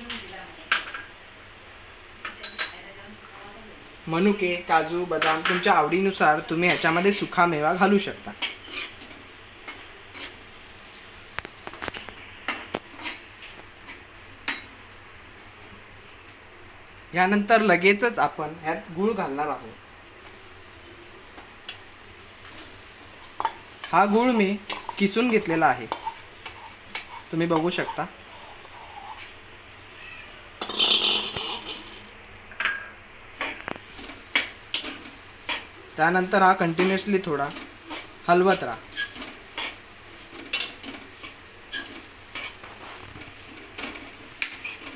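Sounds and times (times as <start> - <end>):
faint steady sizzle: 0.0 - 44.9
spoon clinking and scraping on metal pan: 5.2 - 5.8, 8.4 - 9.1, 23.2 - 29.3, 30.6 - 32.0, 36.7 - 39.8, 40.4 - 42.6, 44.4 - 44.9
spoon scraping pan: 6.6 - 10.5, 11.4 - 14.7, 22.4 - 29.4, 30.6 - 32.1, 32.7 - 44.9.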